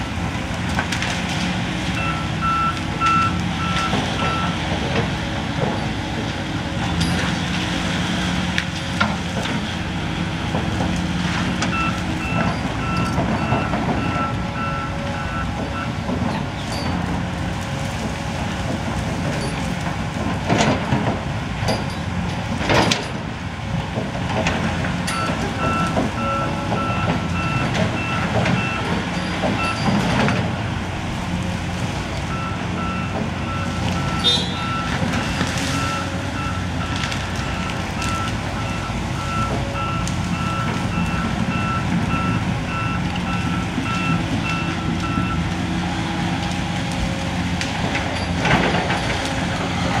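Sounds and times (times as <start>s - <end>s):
excavator diesel engine: 0.0s - 50.0s
travel alarm beeping: 32.3s - 34.9s
wood splitting and limbs breaking: 33.6s - 50.0s.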